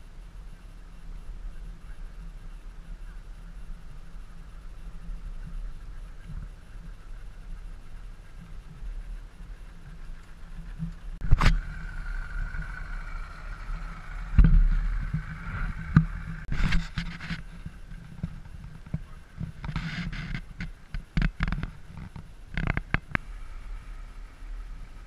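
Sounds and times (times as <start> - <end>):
outboard motors rumbling: 0.0 - 25.0.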